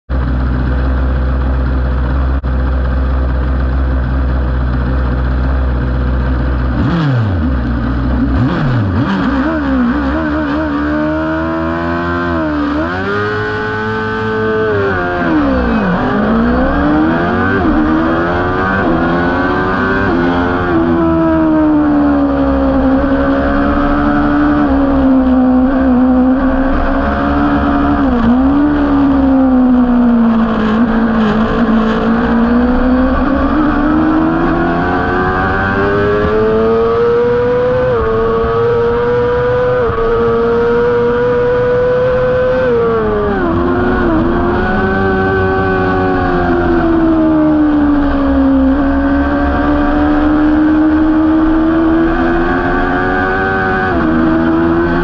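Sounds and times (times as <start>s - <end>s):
motorcycle engine revving: 0.1s - 55.0s.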